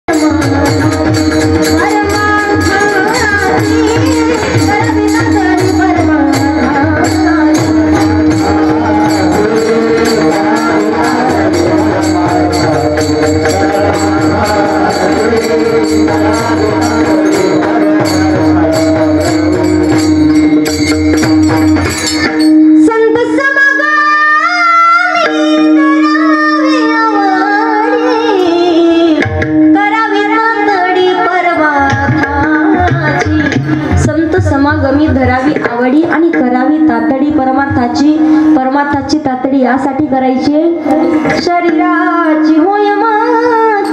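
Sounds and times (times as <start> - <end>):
voices singing: 0.1 - 21.4
hand cymbals: 0.1 - 22.9
drum beat: 0.5 - 22.5
steady drone: 0.7 - 22.5.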